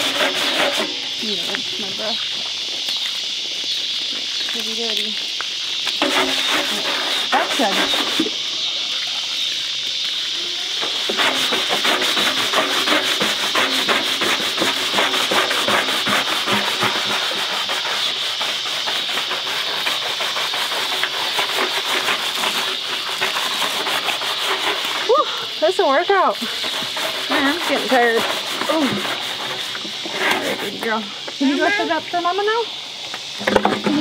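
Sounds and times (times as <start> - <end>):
scrubber rasping on metal drum: 0.0 - 2.1, 6.0 - 8.4, 10.6 - 31.0.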